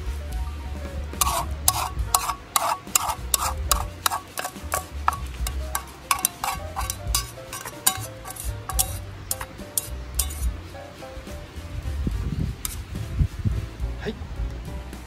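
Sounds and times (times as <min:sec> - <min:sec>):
background music: 0:00.0 - 0:15.0
metal utensil scraping frying pan: 0:01.2 - 0:10.6.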